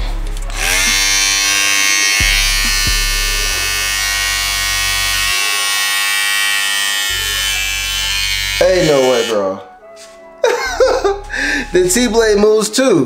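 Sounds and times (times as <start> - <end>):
electric clipper buzzing: 0.5 - 9.6.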